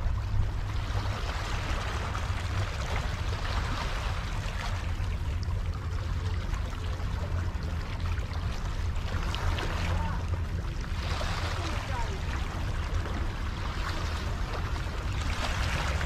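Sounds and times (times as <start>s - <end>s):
low rumble: 0.0s - 16.0s
waves splashing against rock: 6.4s - 16.0s.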